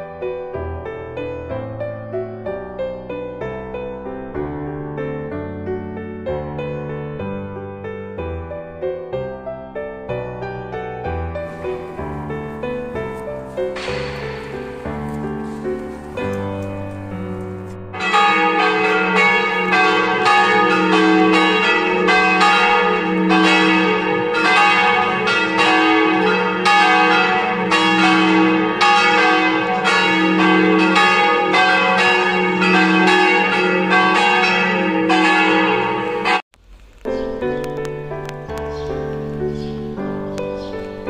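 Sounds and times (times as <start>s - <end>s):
church bells ringing: 11.4s - 36.4s.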